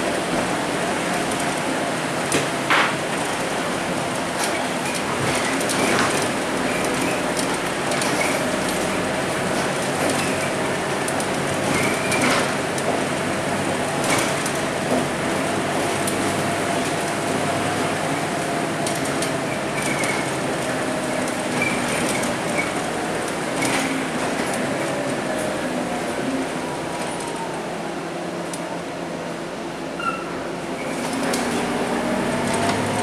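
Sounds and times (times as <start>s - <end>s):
bus diesel engine running: 0.0s - 33.0s
clicks and squeaks of fittings: 30.0s - 31.0s
tyre noise on wet road: 30.9s - 33.0s.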